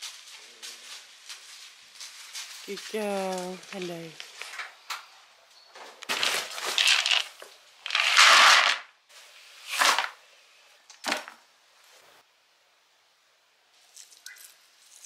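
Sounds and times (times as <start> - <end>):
dry feed pouring into bucket: 6.6 - 8.8.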